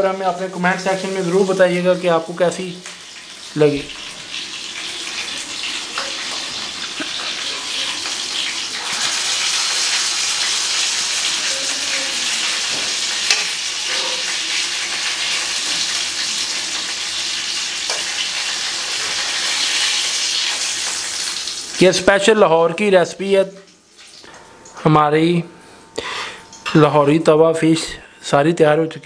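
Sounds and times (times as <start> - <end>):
fish sizzling in hot oil: 0.5 - 22.0, 23.7 - 24.3.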